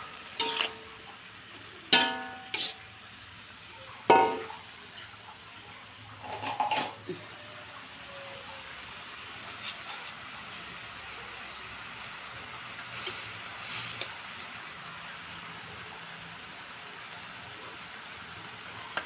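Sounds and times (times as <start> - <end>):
faint frying hiss: 0.0 - 19.0
metal spatula clanking on wok: 0.3 - 1.0, 1.9 - 2.8, 4.1 - 4.6, 6.2 - 7.0.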